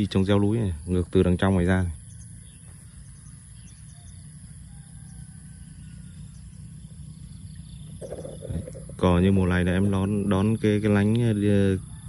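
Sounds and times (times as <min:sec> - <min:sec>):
faint distant calls: 0:00.0 - 0:12.0
insects chirring: 0:00.0 - 0:12.0
wind rumble on microphone: 0:03.9 - 0:12.0.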